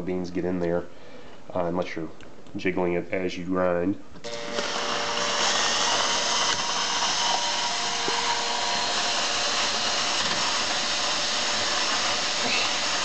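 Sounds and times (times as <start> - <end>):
cordless drill running: 4.2 - 13.0
grinder grinding coffee beans: 4.2 - 13.0.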